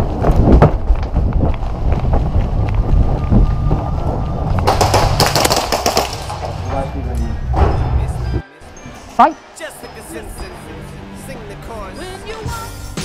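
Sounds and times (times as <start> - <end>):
wind buffeting microphone: 0.0 - 6.6
fast airsoft gunfire: 4.7 - 6.4.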